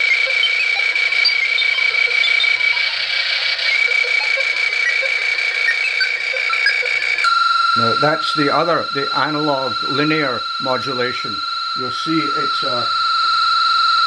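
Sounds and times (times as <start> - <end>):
steady high tone: 0.0 - 14.0
radio hiss: 7.8 - 13.2.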